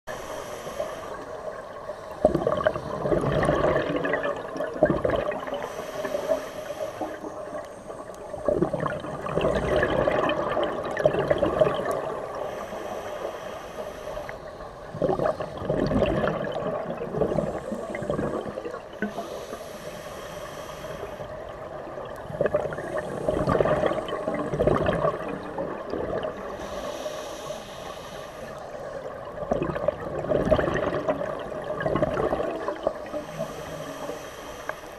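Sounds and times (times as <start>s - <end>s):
regulator hiss on inhale: 0.1s - 2.2s, 5.5s - 8.3s, 12.1s - 14.9s, 17.3s - 21.7s, 26.4s - 29.1s, 33.0s - 34.9s
exhaust bubbles bursting: 2.2s - 5.5s, 8.4s - 12.1s, 15.0s - 18.6s, 22.3s - 26.3s, 29.4s - 32.9s.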